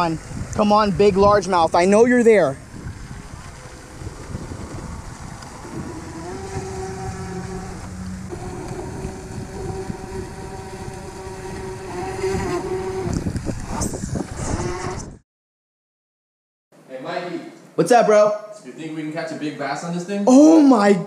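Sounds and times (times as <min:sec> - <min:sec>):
wind rumble on microphone: 0:00.0 - 0:15.2
toy boat motor whining: 0:03.0 - 0:13.2, 0:14.5 - 0:15.0.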